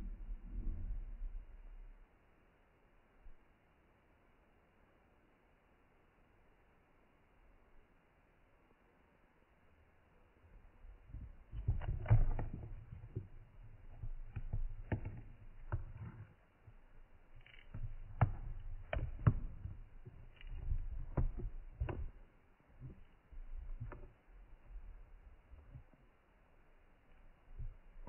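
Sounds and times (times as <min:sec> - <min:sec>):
camera handling rumble: 0:11.2 - 0:16.2.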